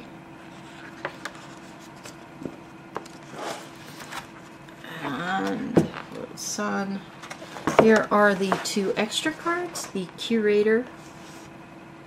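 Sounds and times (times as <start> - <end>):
book pages turning: 0.5 - 6.2.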